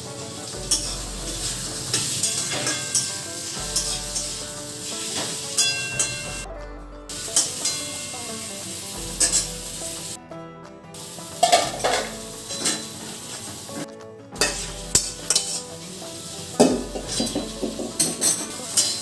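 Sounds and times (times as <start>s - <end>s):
food sizzling in pan: 0.0s - 6.4s, 7.1s - 10.2s, 11.0s - 19.0s
utensil scraping pan: 11.4s - 19.0s.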